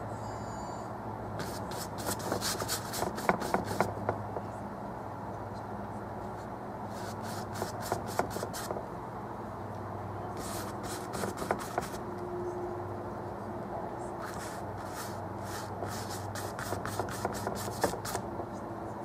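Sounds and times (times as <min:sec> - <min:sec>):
steady low hum: 0:00.0 - 0:19.0
paintbrush strokes scratching: 0:01.4 - 0:04.1, 0:06.3 - 0:08.8, 0:10.4 - 0:12.0, 0:14.2 - 0:18.2.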